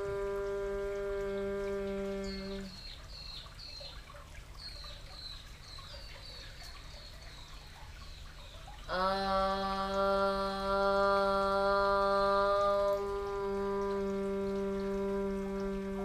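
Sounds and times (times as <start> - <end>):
woman chanting om: 0.0 - 2.8, 8.9 - 16.0
bird chirping: 2.2 - 8.9.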